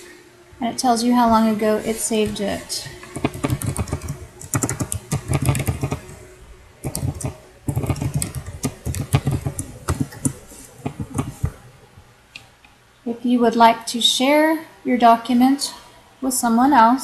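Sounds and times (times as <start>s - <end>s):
typing on computer keyboard: 3.1s - 6.1s, 6.8s - 11.5s.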